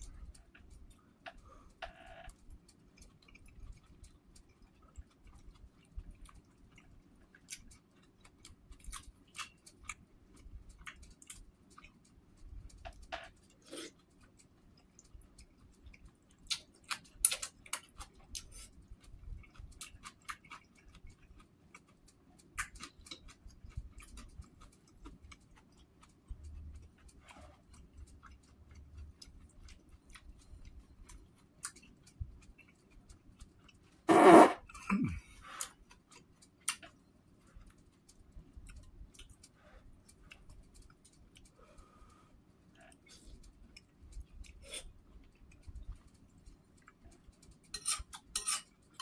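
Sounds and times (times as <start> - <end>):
chewing and mouth noises: 0.0 - 49.0
spoon scraping ceramic bowl: 34.1 - 34.6, 47.7 - 49.0.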